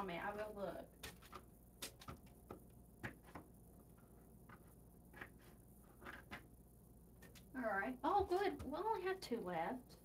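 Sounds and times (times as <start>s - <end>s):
knife cutting on plastic board: 0.9s - 3.5s.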